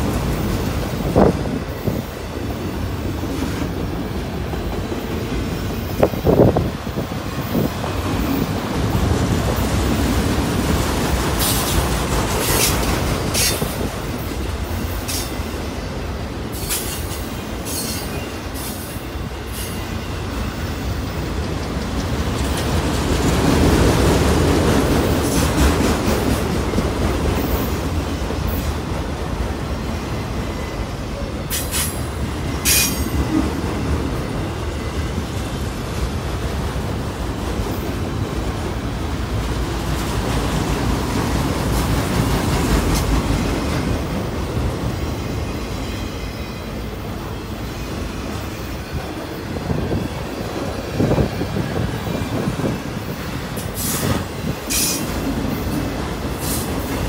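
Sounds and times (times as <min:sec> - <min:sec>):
train wheels rumbling on rail: 0:00.0 - 0:57.0.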